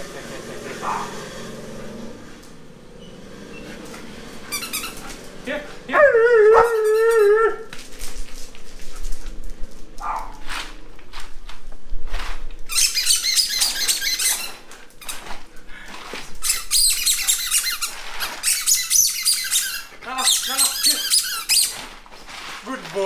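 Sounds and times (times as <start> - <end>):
dog howling: 5.0 - 7.9
ice cubes clattering and crunching: 20.9 - 23.0.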